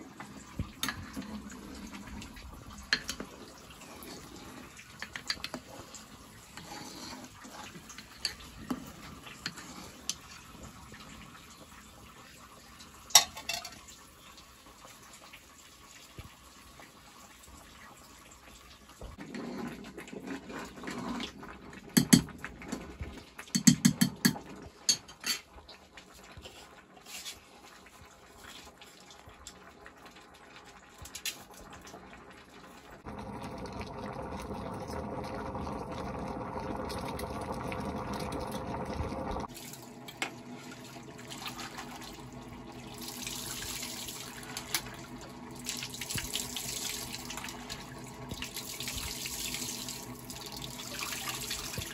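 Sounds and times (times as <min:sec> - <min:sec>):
boiling pot hissing: 0:00.0 - 0:12.2, 0:32.9 - 0:51.9.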